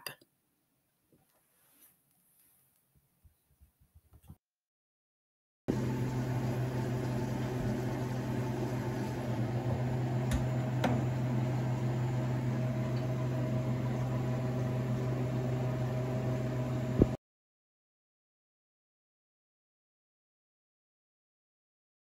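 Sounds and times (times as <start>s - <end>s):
compressor humming: 5.7s - 17.2s.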